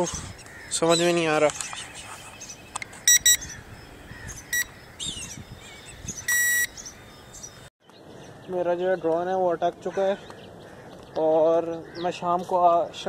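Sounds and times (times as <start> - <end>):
remote controller beeping: 3.1 - 3.4, 6.3 - 6.7.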